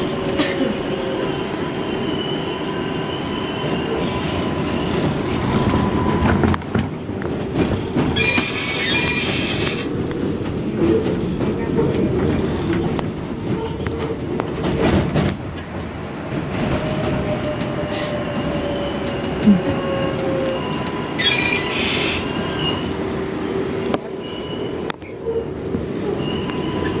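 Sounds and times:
train wheels rumbling on rail: 0.0s - 27.0s
high wheel squeals: 8.1s - 9.9s, 18.3s - 22.9s.

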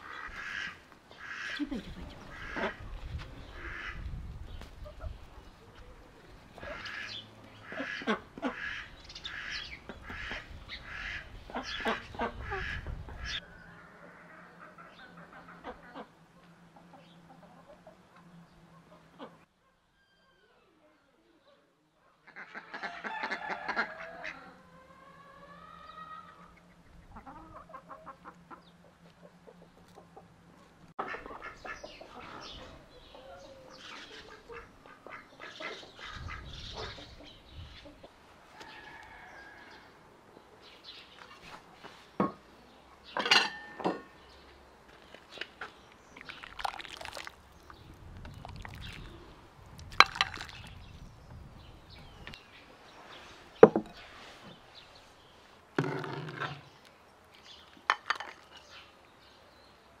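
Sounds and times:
ducks calling: 0.0s - 4.0s, 6.5s - 16.2s, 31.0s - 38.1s
chickens calling: 0.0s - 19.5s, 22.2s - 42.0s.

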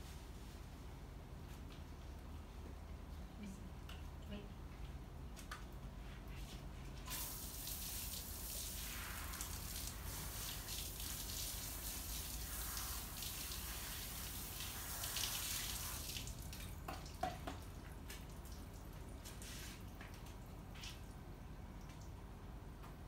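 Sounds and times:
garden hose spraying water: 7.1s - 21.1s
water dripping: 7.1s - 23.0s.

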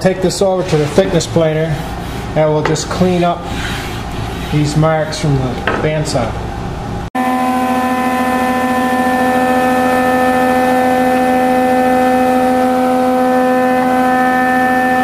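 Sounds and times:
thickness planer humming: 7.2s - 15.0s.

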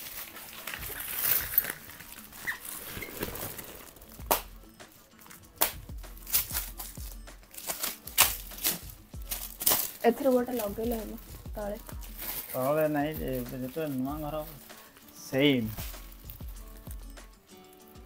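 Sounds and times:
foil gift wrap crinkling and tearing: 0.0s - 4.4s, 6.2s - 11.2s, 11.8s - 16.9s.

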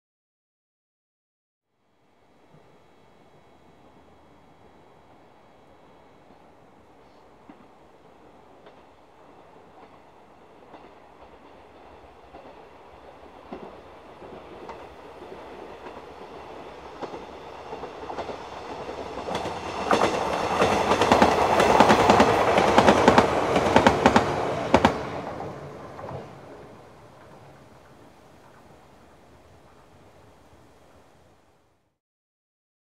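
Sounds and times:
electric train passing: 1.7s - 31.9s
wheels clicking over rail joints: 6.2s - 31.1s.

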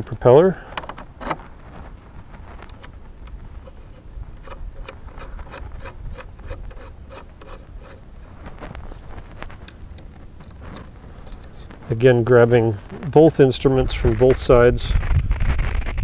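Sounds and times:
low background rumble: 0.0s - 16.0s
propeller nut rubbing clicks: 2.6s - 11.9s.

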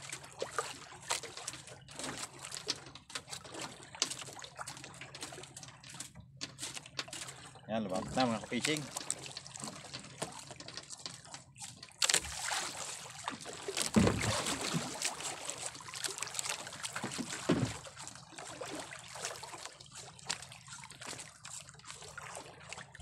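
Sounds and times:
water lapping against boat hull: 0.0s - 23.0s
water splashes: 0.0s - 23.0s.

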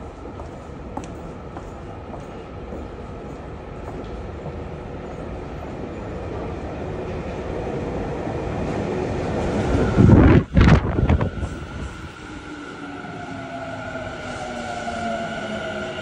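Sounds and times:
subway train rumbling in tunnel: 0.0s - 16.0s.

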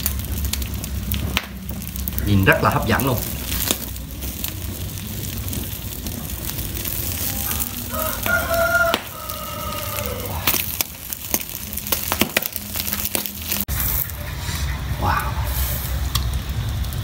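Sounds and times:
wood fire crackling: 0.0s - 17.0s
rooster crowing: 7.3s - 10.5s.

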